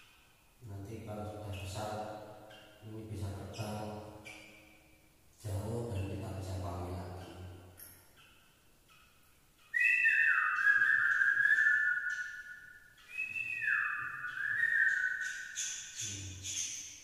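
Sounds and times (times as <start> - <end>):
person whistling long notes: 9.8 - 12.3, 13.1 - 15.3.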